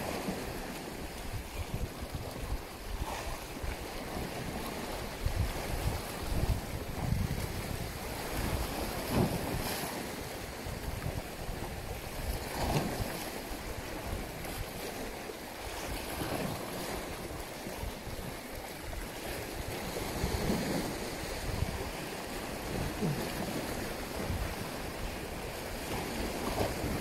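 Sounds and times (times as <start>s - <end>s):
waves lapping and splashing: 0.0s - 27.0s
wind buffeting microphone: 0.0s - 27.0s.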